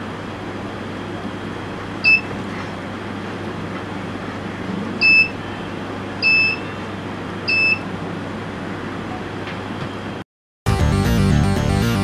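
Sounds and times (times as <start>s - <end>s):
short high buzzer beeps: 6.2s - 6.8s.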